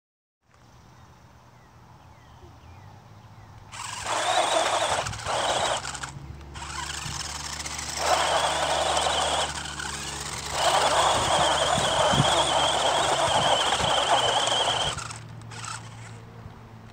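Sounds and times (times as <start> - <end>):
electric motor and gear whine: 3.7 - 16.9
tyres scrabbling on asphalt: 3.8 - 16.2.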